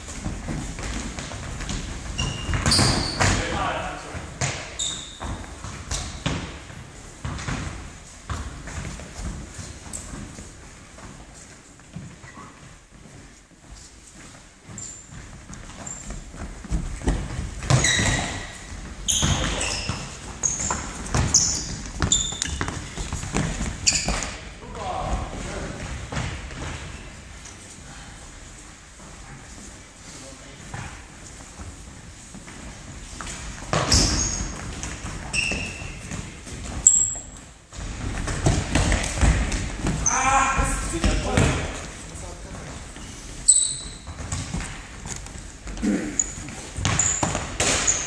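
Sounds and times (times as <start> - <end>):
shoes squeaking on wooden floor: 0.0 - 24.6, 28.4 - 48.0
running footsteps: 4.1 - 24.4
ball kicked and bouncing: 4.4 - 10.3, 15.5 - 24.5, 33.2 - 41.8, 43.9 - 45.3, 46.6 - 48.0.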